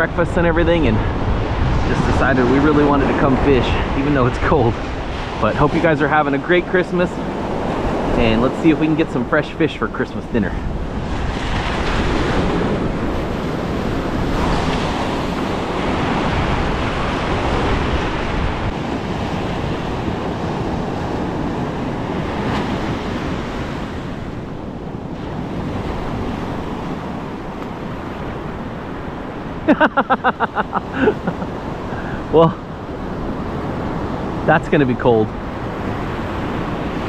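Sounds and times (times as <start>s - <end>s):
person's voice: 0.0s - 1.1s, 1.8s - 4.8s, 5.4s - 7.2s, 8.1s - 10.6s, 32.1s - 32.6s, 34.5s - 35.3s
ocean surf breaking: 0.0s - 37.0s
wind buffeting microphone: 0.0s - 37.0s.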